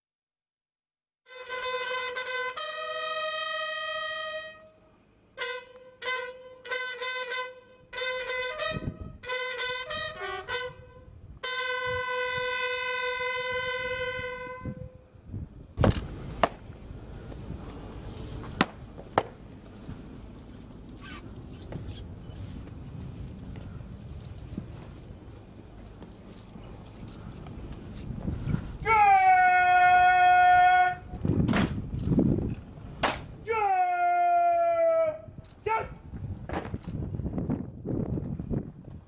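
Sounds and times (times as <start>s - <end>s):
bugle call: 1.3s - 15.0s, 28.8s - 31.2s, 33.5s - 36.0s.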